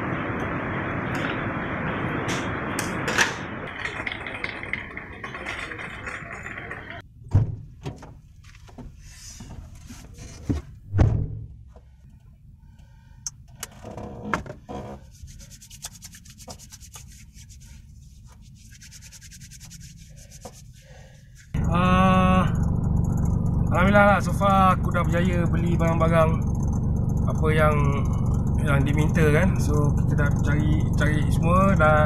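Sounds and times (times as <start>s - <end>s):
shopping trolley rattling: 3.6s - 7.0s
hands rubbing on skin: 15.0s - 21.5s.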